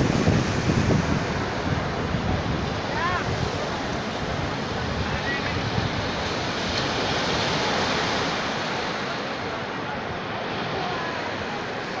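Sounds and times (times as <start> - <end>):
ocean surf on beach: 0.0 - 12.0.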